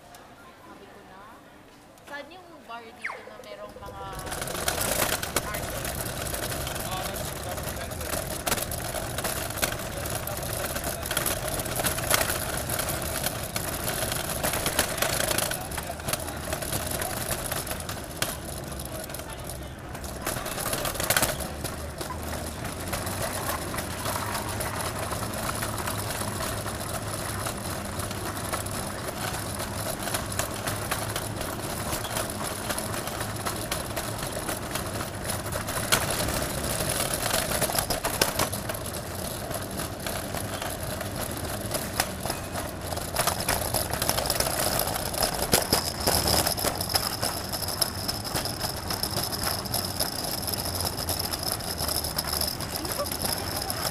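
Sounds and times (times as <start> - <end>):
traffic noise: 0.0 - 53.9.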